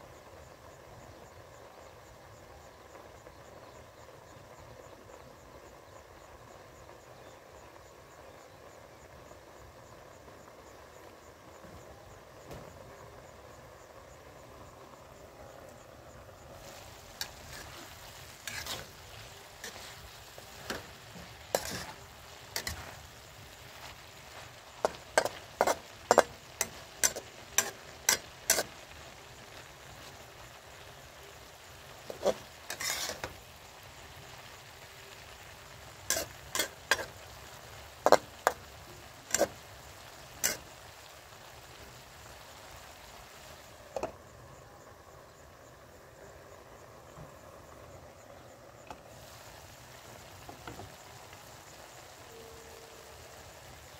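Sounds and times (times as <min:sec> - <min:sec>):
food sizzling: 0:00.0 - 0:53.9
metal spatula clanking on wok: 0:19.6 - 0:22.0, 0:24.8 - 0:28.7, 0:32.1 - 0:33.4, 0:36.1 - 0:37.1.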